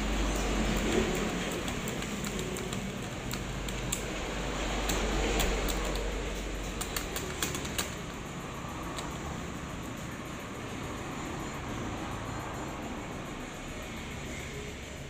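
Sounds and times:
metal mechanism clicks and ticks: 0:00.1 - 0:09.5.

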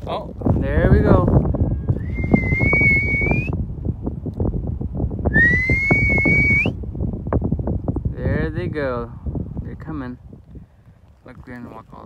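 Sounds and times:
wind rumble on microphone: 0:00.0 - 0:12.0
person whistling long notes: 0:02.0 - 0:03.6, 0:05.3 - 0:06.8.

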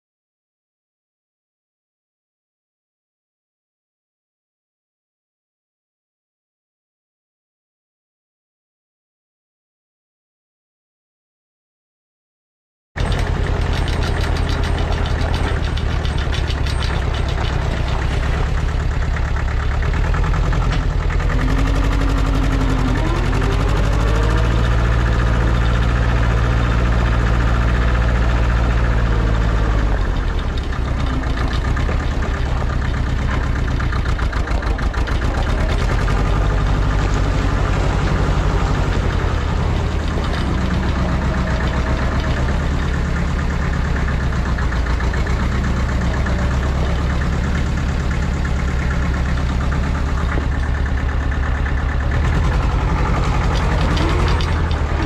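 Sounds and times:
tractor engine running: 0:13.0 - 0:55.0.

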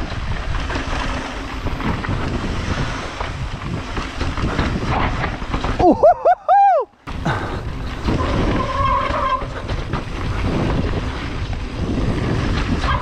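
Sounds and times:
wind on microphone: 0:00.0 - 0:06.4, 0:07.1 - 0:13.0
bike rattle: 0:00.0 - 0:13.0
tyres rumbling on dirt: 0:00.0 - 0:13.0
rider whooping: 0:05.8 - 0:09.6.

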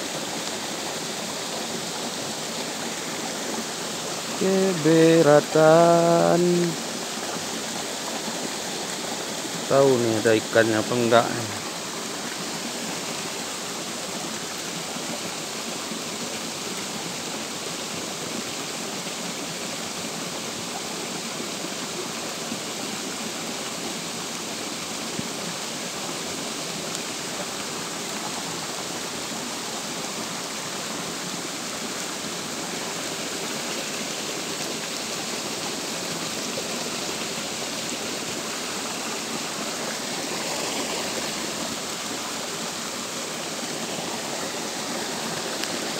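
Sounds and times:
rain falling on water and leaves: 0:00.0 - 0:45.9.

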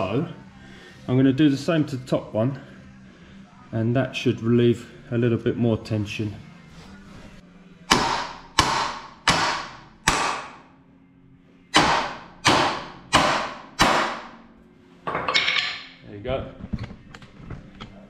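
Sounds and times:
hammers ringing on metal: 0:07.9 - 0:10.6.

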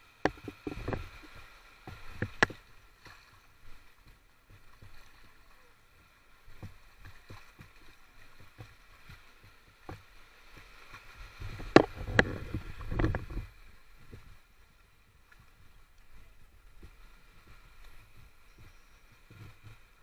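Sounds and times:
seawater lapping and sloshing: 0:00.0 - 0:20.0
small water splashes: 0:00.0 - 0:20.0.

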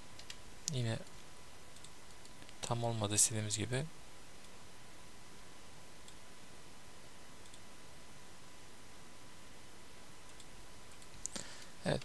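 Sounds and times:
steady low hiss: 0:00.0 - 0:12.0
faint mouse clicks: 0:01.8 - 0:02.6, 0:07.4 - 0:07.7, 0:10.3 - 0:12.0.

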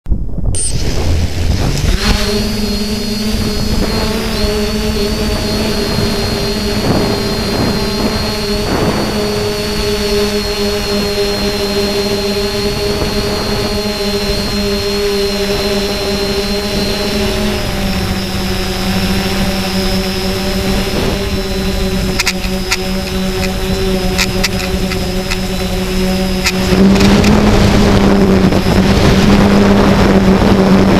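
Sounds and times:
rushing air rumble: 0:00.0 - 0:10.0
drone propellers droning: 0:00.4 - 0:30.9.

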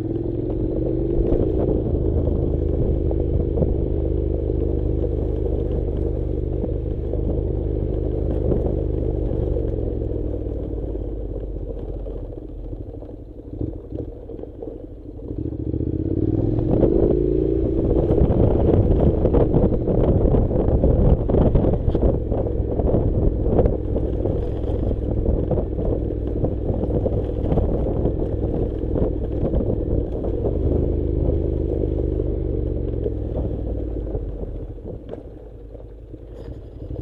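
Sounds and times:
motorcycle engine running: 0:00.0 - 0:37.0
gravel stones clattering: 0:32.9 - 0:37.0.

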